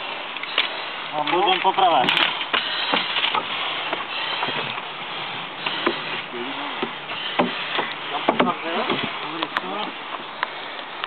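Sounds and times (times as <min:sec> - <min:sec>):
gear knocking on wooden pallets: 0:05.6 - 0:09.9.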